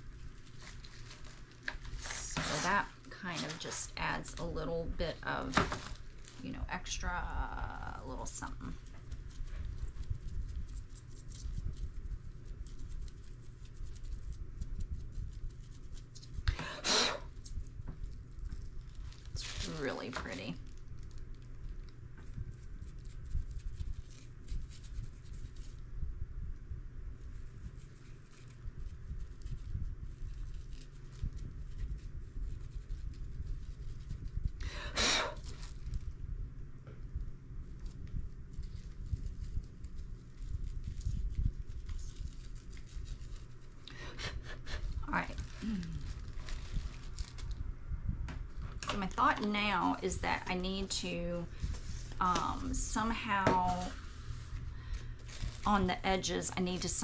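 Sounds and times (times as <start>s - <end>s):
paintbrush dabbing and scratching: 0.0s - 4.8s, 6.1s - 16.4s, 22.2s - 25.8s, 27.2s - 34.6s, 37.6s - 43.8s, 49.2s - 54.6s
low steady rumble: 0.0s - 57.0s.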